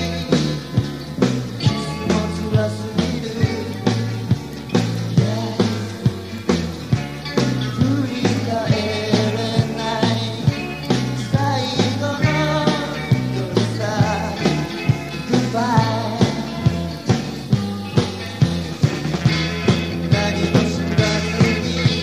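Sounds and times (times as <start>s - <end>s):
rock band playing: 0.0s - 22.0s
steady drum beat: 0.0s - 22.0s.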